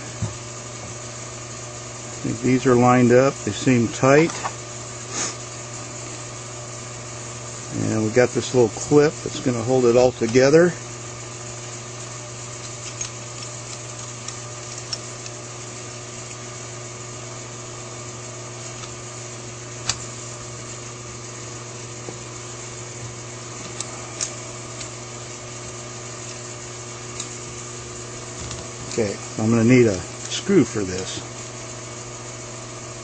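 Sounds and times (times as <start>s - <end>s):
steady background hum: 0.0s - 33.0s
small metal parts clicking: 12.6s - 15.4s.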